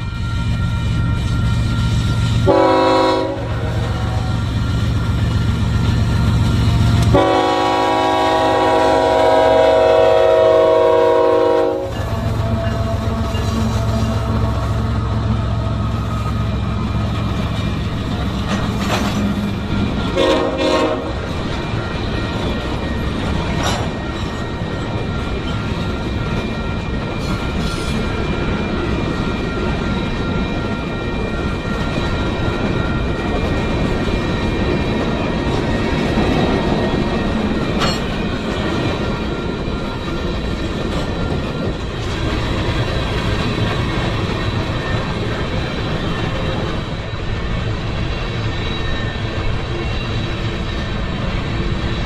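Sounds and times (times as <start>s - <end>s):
freight train rumbling past: 0.0s - 52.0s
train horn: 2.2s - 4.6s, 6.9s - 17.2s, 20.0s - 21.3s
wheels clacking over rail joints: 16.1s - 20.2s, 21.2s - 28.0s, 31.7s - 47.0s.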